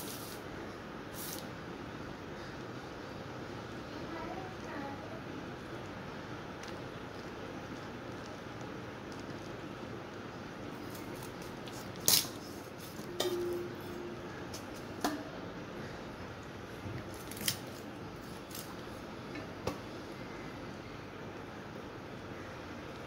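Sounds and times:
faint steady hiss: 0:00.0 - 0:23.0
short ringing tone: 0:13.0 - 0:14.3.

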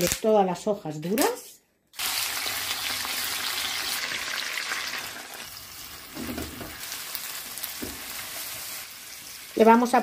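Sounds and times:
meat and onion frying in oil: 0:02.0 - 0:10.0.

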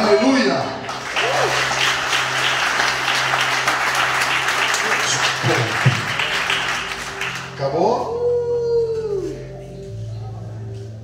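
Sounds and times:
crowd applauding: 0:00.8 - 0:07.8.

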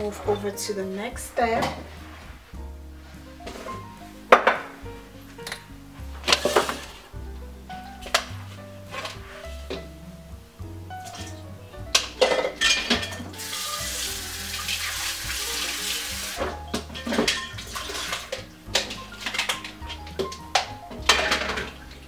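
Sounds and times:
background music with bass line: 0:00.0 - 0:22.0
kitchen clatters: 0:01.4 - 0:02.1, 0:05.4 - 0:07.0, 0:08.0 - 0:09.9, 0:11.0 - 0:13.9, 0:16.4 - 0:22.0.

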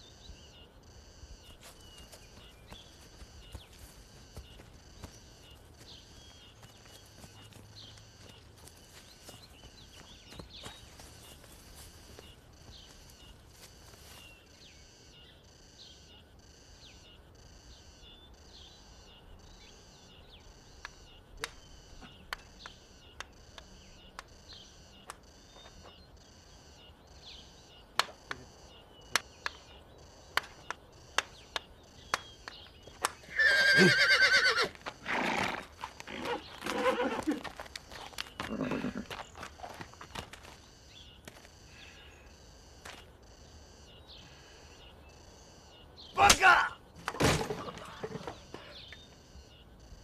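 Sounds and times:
insects chirping: 0:00.0 - 0:50.0
horse hooves clopping on dirt: 0:01.5 - 0:14.3, 0:32.1 - 0:41.5
horse whinny: 0:33.3 - 0:37.4, 0:38.5 - 0:39.1.

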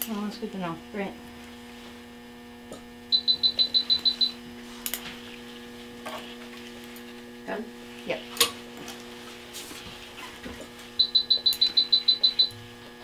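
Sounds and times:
steady electrical hum: 0:00.0 - 0:13.0
short high-pitched electronic beeps: 0:03.1 - 0:04.3, 0:11.0 - 0:12.6.

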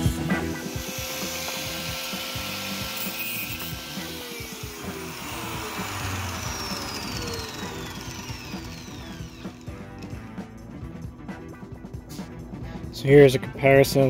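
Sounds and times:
background music: 0:00.0 - 0:14.0
angle grinder spinning down: 0:00.6 - 0:10.3.

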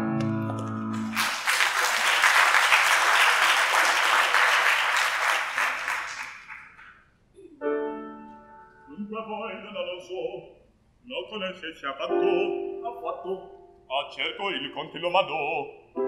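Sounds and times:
audience applauding: 0:00.5 - 0:07.0.

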